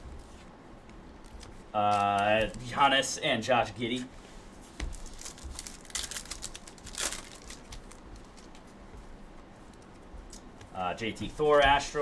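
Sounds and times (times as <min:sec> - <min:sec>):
trading cards shuffling: 0:00.1 - 0:02.7, 0:04.6 - 0:08.9.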